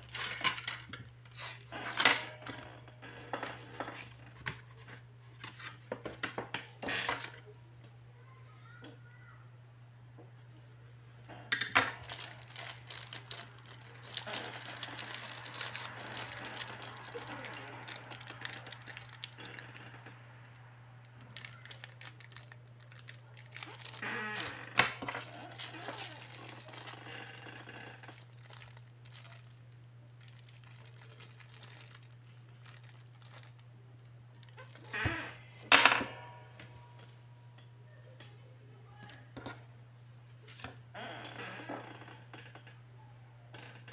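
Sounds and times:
plastic bag crinkling: 11.8s - 19.9s, 20.5s - 35.1s
paper leaflet rustling: 12.0s - 19.4s, 21.3s - 27.4s.

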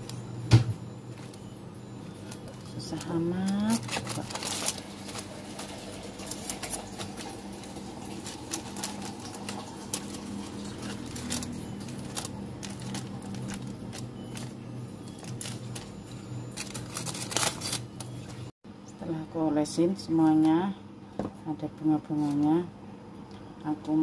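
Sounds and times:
aluminium foil crinkling: 2.2s - 18.5s.

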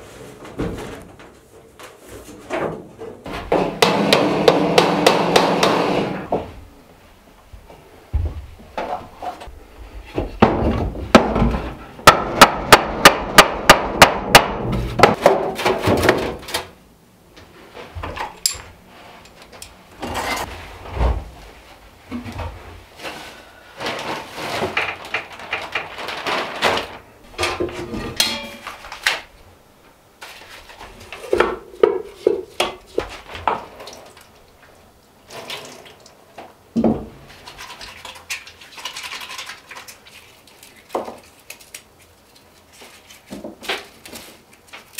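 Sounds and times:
handling clunks and rustling: 17.4s - 29.3s.

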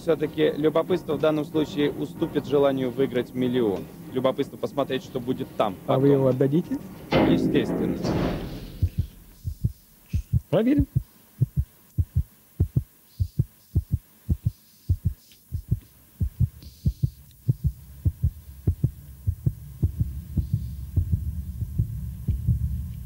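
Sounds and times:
low heartbeat thumps: 8.7s - 23.0s
low rumbling drone: 17.5s - 23.0s.

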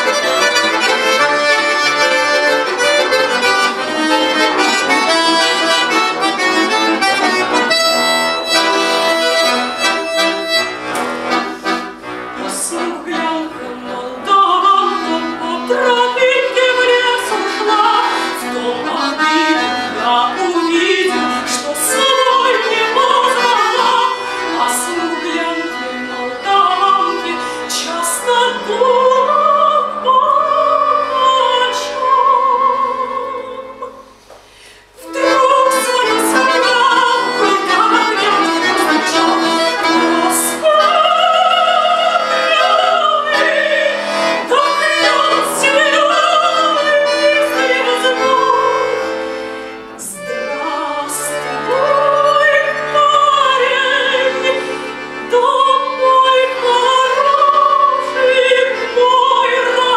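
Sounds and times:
button accordion playing chords: 0.0s - 59.9s
woman singing with vibrato: 12.4s - 34.1s, 35.0s - 59.9s.

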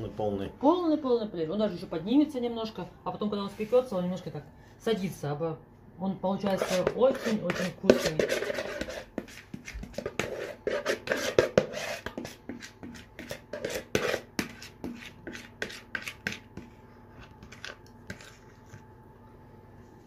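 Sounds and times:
utensil scraping a mixing bowl: 6.4s - 18.9s.

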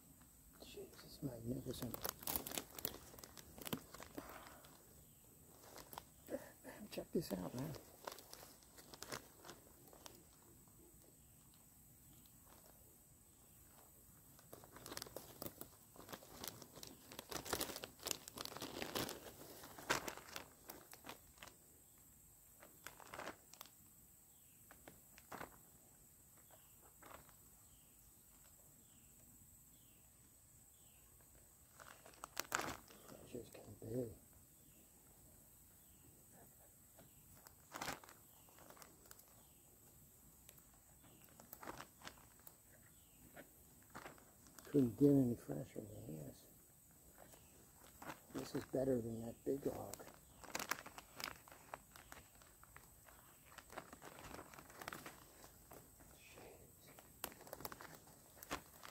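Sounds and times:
mushroom crackling and tearing: 0.9s - 23.8s, 31.6s - 33.7s, 37.0s - 45.8s, 46.9s - 56.2s, 56.8s - 58.9s
plastic bag rustling: 1.0s - 6.5s, 7.2s - 10.6s, 13.6s - 21.6s, 22.6s - 23.7s, 31.7s - 33.6s, 37.0s - 39.6s, 40.5s - 45.0s, 47.1s - 58.9s.

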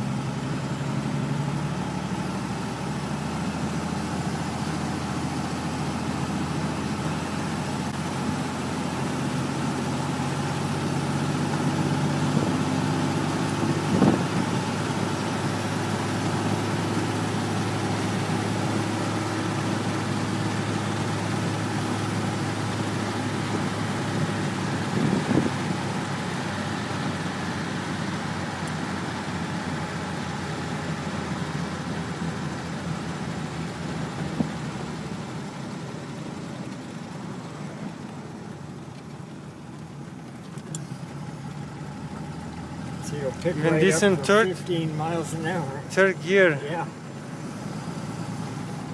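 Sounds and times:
car engine running: 0.0s - 48.9s
road noise: 0.0s - 48.9s.

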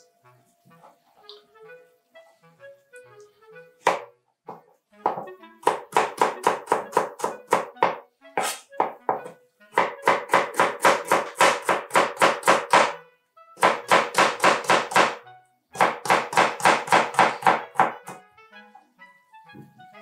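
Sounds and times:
knife chopping on cutting board: 3.8s - 13.0s, 13.6s - 15.2s, 15.8s - 18.2s.

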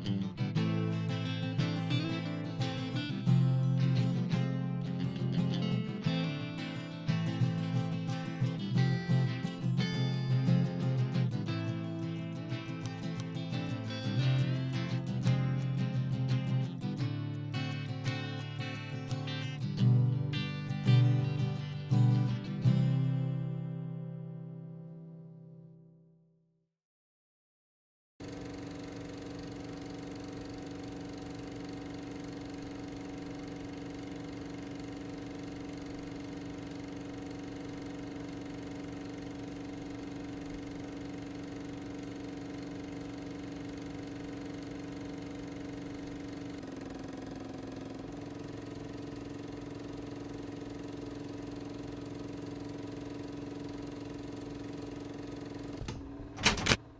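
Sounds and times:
motor humming: 28.2s - 56.9s.

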